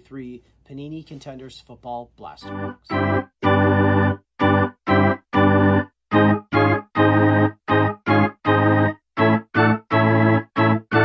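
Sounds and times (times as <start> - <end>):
punchy organ-like keyboard chords: 2.4 - 11.0.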